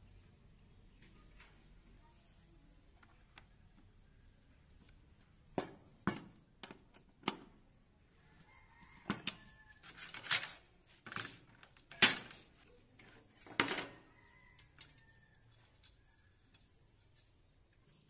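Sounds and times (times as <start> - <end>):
metal parts clicking and clattering: 9.2 - 14.0.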